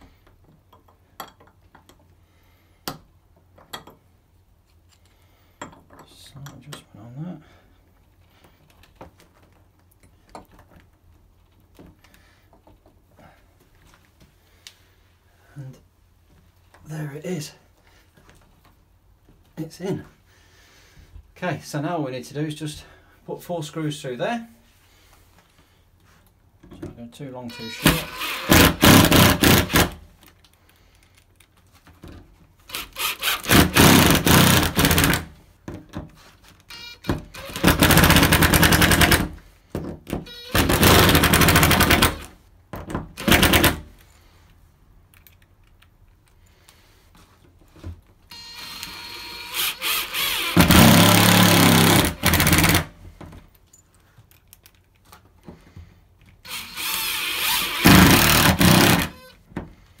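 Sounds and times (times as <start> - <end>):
impact driver hammering screws: 27.5 - 30.0, 32.7 - 35.3, 36.7 - 39.4, 40.1 - 42.3, 43.1 - 43.8, 48.3 - 52.9, 56.4 - 59.4.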